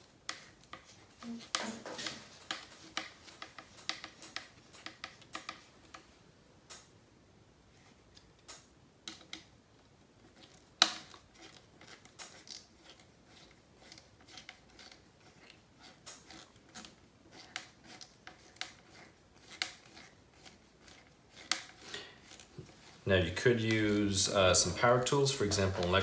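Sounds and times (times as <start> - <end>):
light clicks and scrapes: 10.2 - 26.0
hex driver turning a screw: 11.4 - 22.4.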